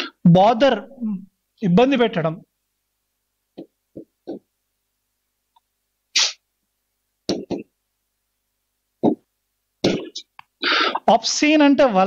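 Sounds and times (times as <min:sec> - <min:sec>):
sharp hiss of breath: 0:06.2 - 0:06.4, 0:10.6 - 0:11.0
man breathing into microphone: 0:10.6 - 0:11.0.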